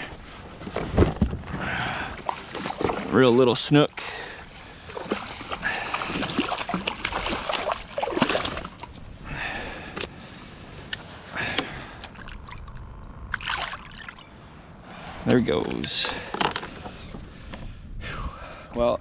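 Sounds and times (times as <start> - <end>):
fish splashing at surface: 4.9 - 9.0, 13.3 - 14.3.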